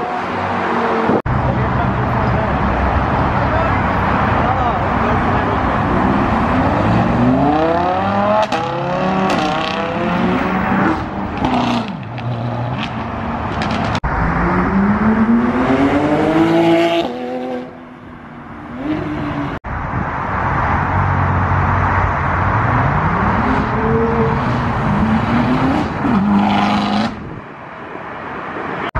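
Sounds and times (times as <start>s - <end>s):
sports cars accelerating: 2.1s - 17.9s, 20.9s - 27.4s.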